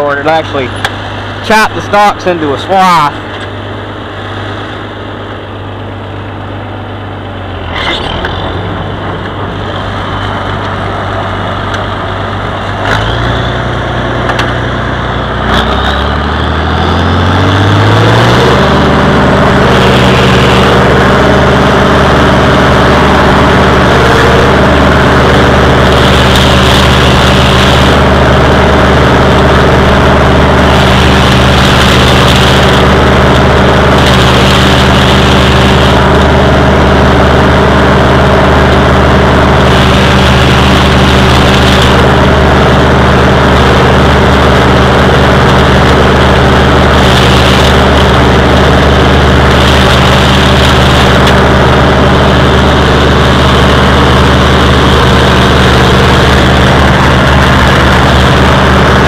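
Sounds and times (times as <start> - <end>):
tractor engine running: 0.0 - 59.0
stalk chopper cutting corn stalks: 15.4 - 59.0.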